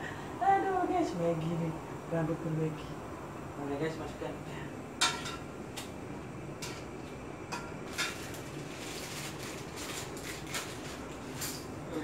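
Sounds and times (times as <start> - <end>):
packaging rustling: 7.9 - 11.6.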